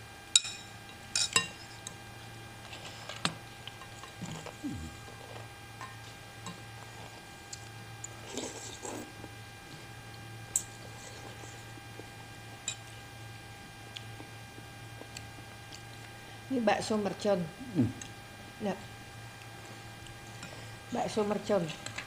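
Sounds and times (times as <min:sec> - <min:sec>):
low electrical hum: 0:00.0 - 0:22.0
chewing or slurping: 0:04.0 - 0:05.5, 0:06.5 - 0:09.9, 0:10.6 - 0:12.1.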